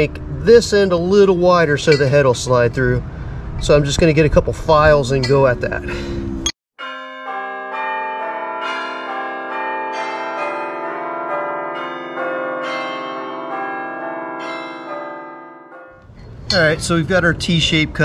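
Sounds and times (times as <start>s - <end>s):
sustained ringing notes music: 6.4s - 16.8s.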